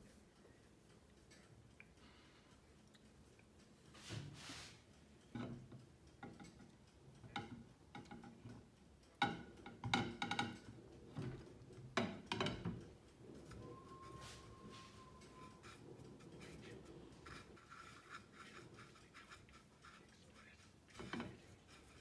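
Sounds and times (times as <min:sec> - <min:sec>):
clicks against ceramic plates: 0:05.2 - 0:22.0.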